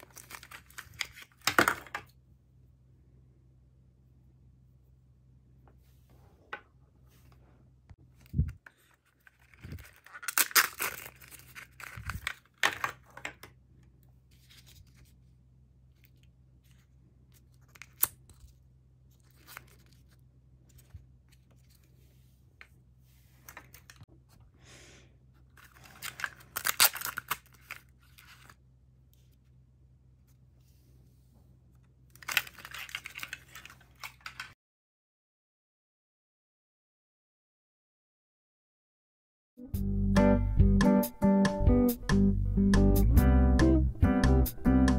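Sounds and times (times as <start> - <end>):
paper wrapping tearing: 8.8 - 13.0, 25.6 - 28.6, 32.2 - 34.5.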